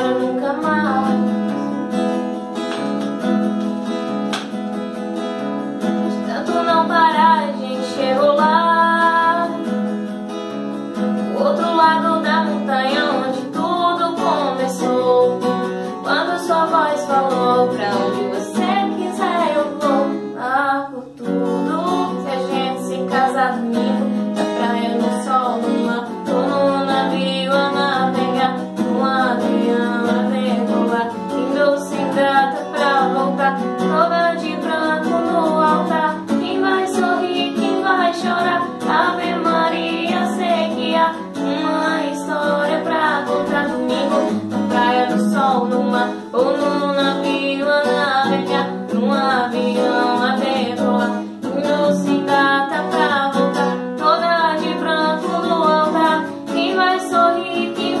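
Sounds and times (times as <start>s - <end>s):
woman singing: 0.0s - 2.8s, 5.8s - 58.0s
acoustic guitar strumming chords: 0.0s - 58.0s.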